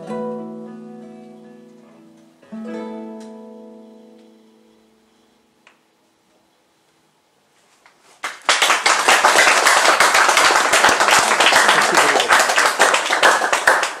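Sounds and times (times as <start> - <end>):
audience applause: 8.2 - 14.0.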